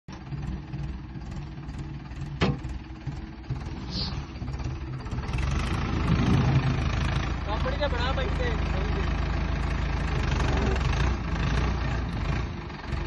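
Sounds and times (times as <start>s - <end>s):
tractor diesel engine throbbing: 0.1s - 13.0s.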